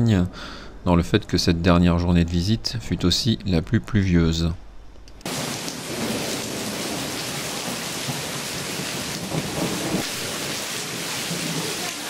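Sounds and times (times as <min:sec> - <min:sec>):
steady rain falling: 0:05.2 - 0:12.0.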